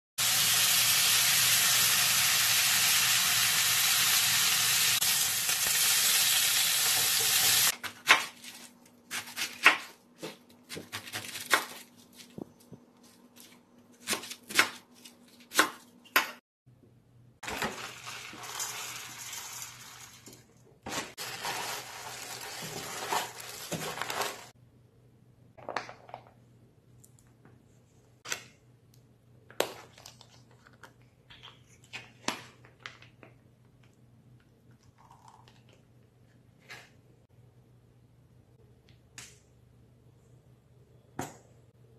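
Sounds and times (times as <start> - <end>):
meat sizzling in a frying pan: 0.2 - 7.7.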